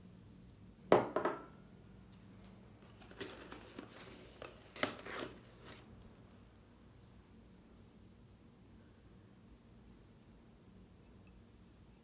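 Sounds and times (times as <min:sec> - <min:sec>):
cardboard rustling and scraping: 0:02.8 - 0:06.0.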